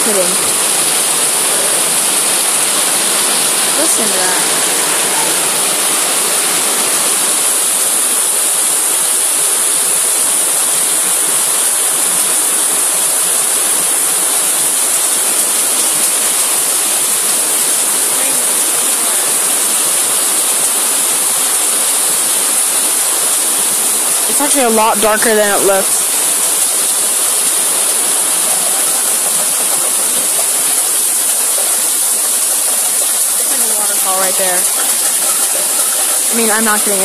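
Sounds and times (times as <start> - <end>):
heavy rain pouring: 0.0 - 37.0.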